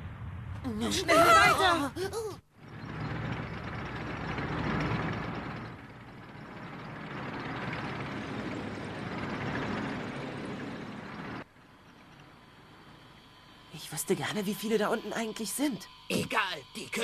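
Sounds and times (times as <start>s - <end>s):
cartoon tank engine and tracks: 0.0s - 17.0s
faint hum: 0.0s - 17.0s.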